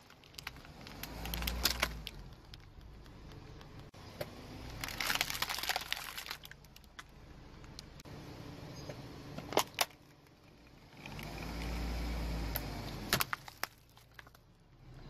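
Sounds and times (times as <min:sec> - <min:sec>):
plastic bucket cracking: 0:00.0 - 0:03.2, 0:04.7 - 0:07.1, 0:13.1 - 0:14.5
plastic toys crackling under tyre: 0:00.0 - 0:04.0, 0:04.6 - 0:08.0, 0:09.4 - 0:11.8, 0:12.5 - 0:14.9.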